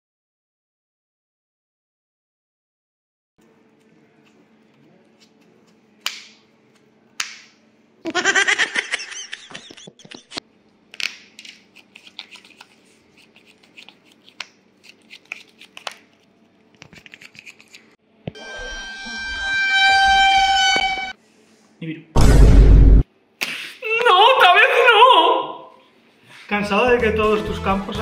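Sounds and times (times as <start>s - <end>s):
cards slapping: 5.2s - 6.4s, 7.2s - 7.6s, 10.9s - 16.2s
deck shuffling: 10.9s - 17.9s.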